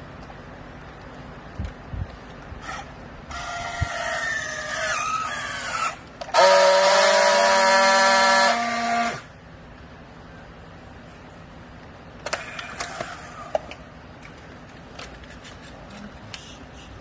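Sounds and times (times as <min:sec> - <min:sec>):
strapping tool motor whining: 0:02.6 - 0:09.3
steady buzzing tone: 0:06.3 - 0:09.4.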